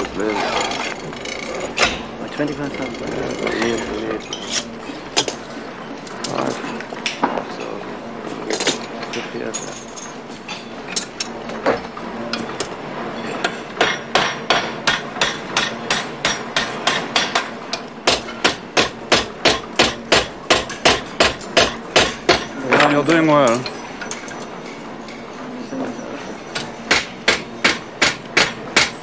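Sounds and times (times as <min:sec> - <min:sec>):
hammer striking metal: 0:13.4 - 0:25.2, 0:26.5 - 0:29.0.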